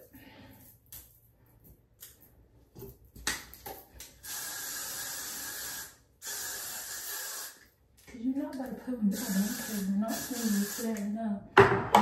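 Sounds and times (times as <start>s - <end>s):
aerosol spray hissing: 4.2s - 7.7s, 9.1s - 11.1s.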